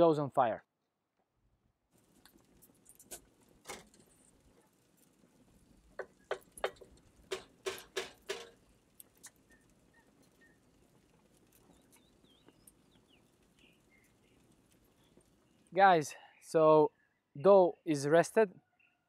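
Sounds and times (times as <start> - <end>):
wooden spoon knocking metal pot: 6.0 - 8.6.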